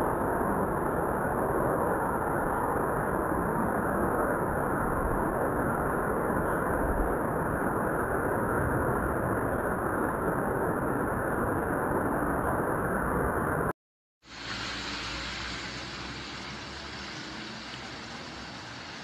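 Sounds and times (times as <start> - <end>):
floodwater rushing: 14.3 - 19.0.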